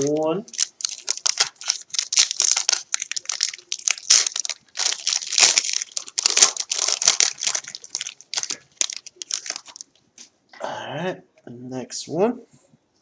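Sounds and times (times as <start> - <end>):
foil wrapper crinkling: 0.0 - 10.0.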